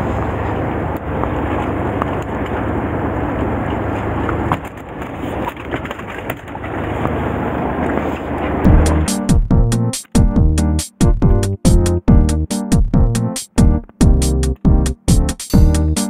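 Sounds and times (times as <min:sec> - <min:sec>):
boat engine rumbling: 0:00.0 - 0:16.0.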